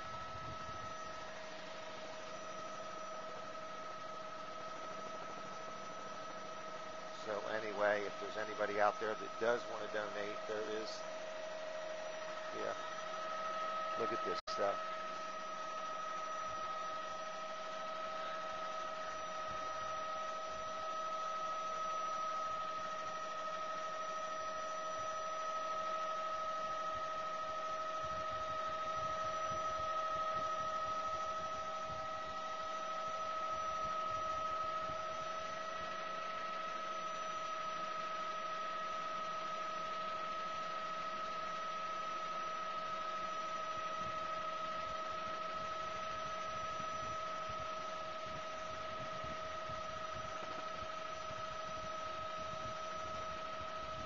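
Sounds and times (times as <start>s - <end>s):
helicopter cabin hum: 0.0s - 25.5s.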